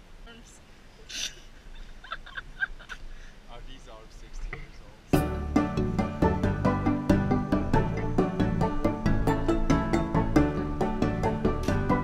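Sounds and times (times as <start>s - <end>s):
background music with struck notes: 5.2s - 12.0s.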